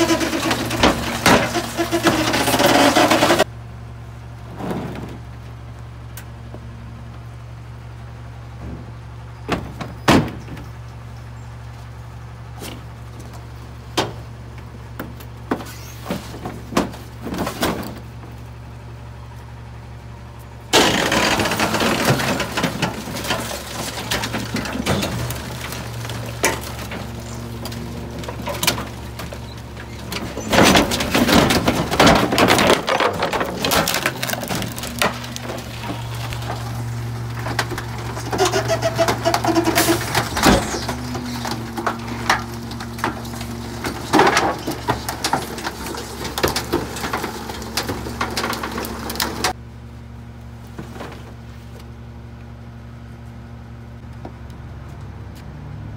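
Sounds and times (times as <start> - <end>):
hydraulic packer grinding: 0.0 - 3.5, 20.7 - 49.6
wood cracking and splintering: 0.0 - 3.5, 20.7 - 49.6
garbage truck idling: 0.0 - 54.1
knocks and thuds: 9.5 - 10.7, 20.8 - 36.7.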